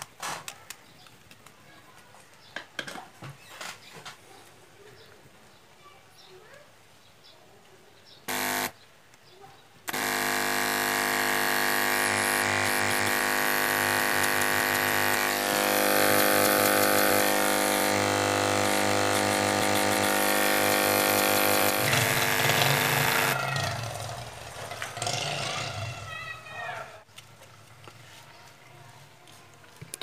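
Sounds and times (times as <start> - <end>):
compressor pump buzzing: 8.3 - 8.8, 9.9 - 24.3.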